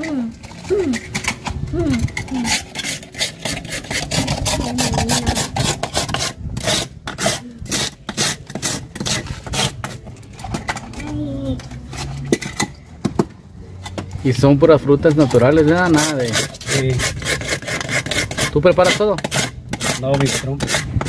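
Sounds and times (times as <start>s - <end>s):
ice scraper rasping on ice: 2.0s - 10.1s, 15.1s - 21.0s.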